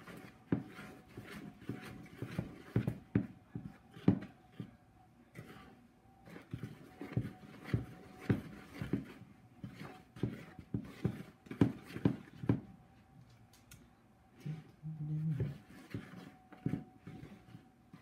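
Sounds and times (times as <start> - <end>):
spoon knocking and scraping bowl: 6.3 - 12.7
short low moan: 14.4 - 15.5.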